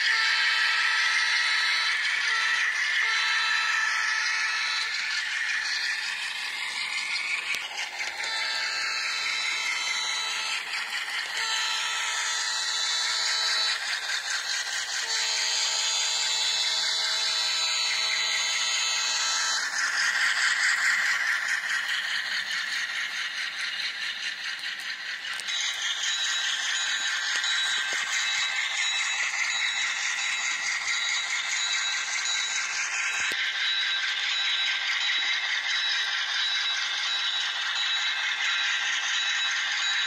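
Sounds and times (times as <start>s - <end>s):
model locomotive horn blasts: 0.0s - 5.0s, 11.3s - 13.8s, 15.0s - 19.5s
model locomotive rattling on track: 0.0s - 40.0s.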